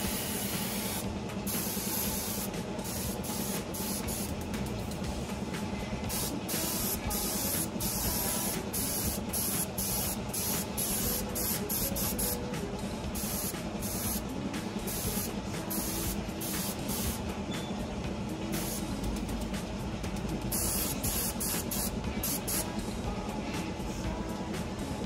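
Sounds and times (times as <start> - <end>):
spray paint hissing: 0.0 - 4.5, 6.1 - 17.2, 18.5 - 19.0, 20.5 - 22.8
steady low hum: 0.0 - 25.0.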